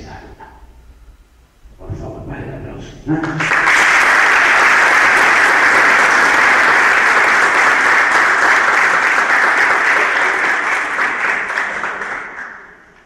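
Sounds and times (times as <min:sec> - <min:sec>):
crowd applauding: 0:03.2 - 0:13.0.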